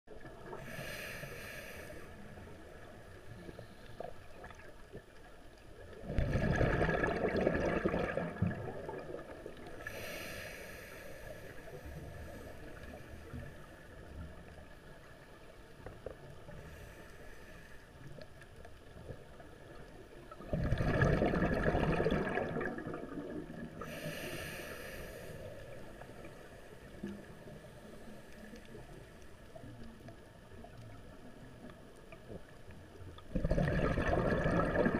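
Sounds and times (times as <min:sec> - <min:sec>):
low underwater hiss: 0:00.1 - 0:34.9
regulator inhalation hisses: 0:00.6 - 0:02.2, 0:09.8 - 0:12.9, 0:23.8 - 0:26.0
exhaled bubbles rushing: 0:05.9 - 0:09.8, 0:20.3 - 0:23.8, 0:33.3 - 0:34.9.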